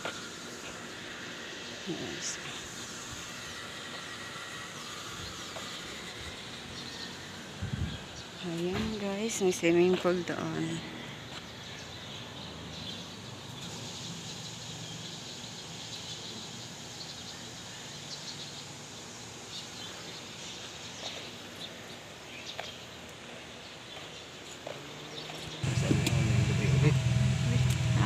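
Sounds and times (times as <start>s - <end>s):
steady hiss: 0.0s - 9.2s, 13.0s - 22.4s
insects chirping: 0.0s - 24.9s
birds chirping: 0.2s - 28.0s.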